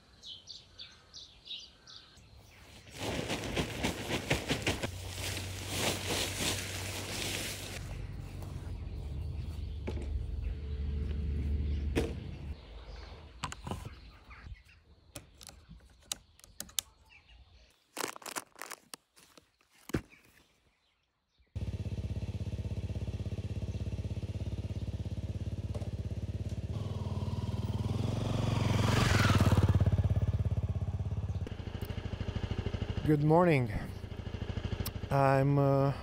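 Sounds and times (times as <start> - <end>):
motorcycle engine running: 3.8 - 12.6, 21.6 - 35.6.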